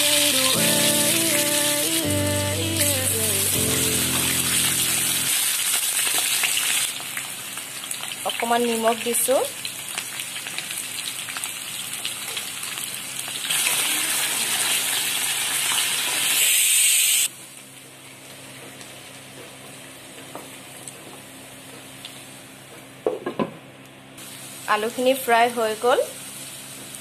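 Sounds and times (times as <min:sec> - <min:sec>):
potato wedges sizzling in oil: 0:03.0 - 0:17.3, 0:24.2 - 0:27.0.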